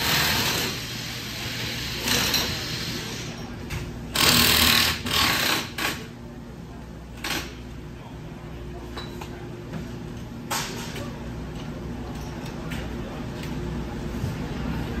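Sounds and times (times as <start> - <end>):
low garage hum: 0.0 - 15.0.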